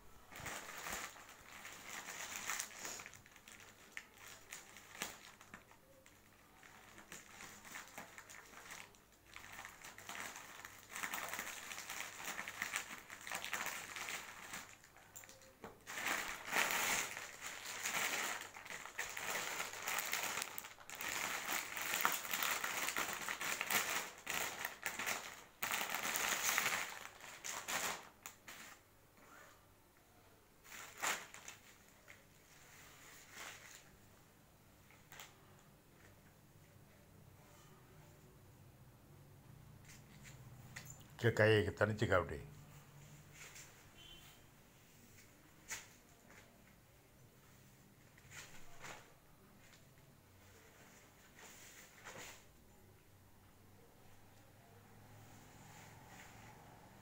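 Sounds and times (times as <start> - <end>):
plastic wrapping crinkling: 0.1 - 28.8, 30.6 - 34.0, 34.9 - 36.1.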